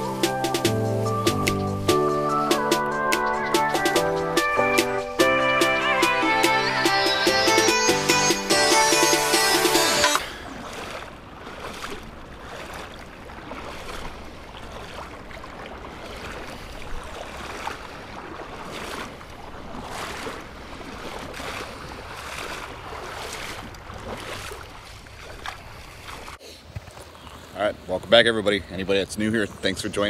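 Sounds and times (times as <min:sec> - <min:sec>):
flowing water rushing: 0:00.0 - 0:30.0
footsteps wading through water: 0:10.1 - 0:28.2.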